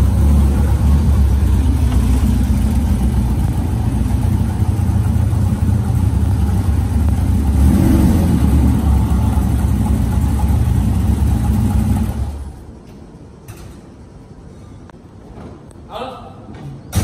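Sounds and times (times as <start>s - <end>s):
car engine revving: 0.0s - 12.6s.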